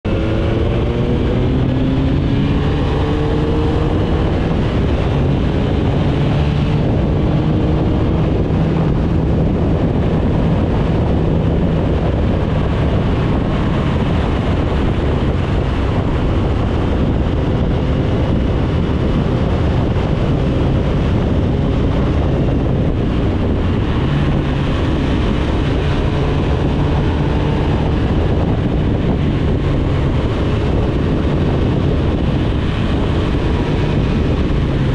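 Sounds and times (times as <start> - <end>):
motorcycle engine running: 0.0 - 34.9
wind rush on microphone: 0.0 - 34.9.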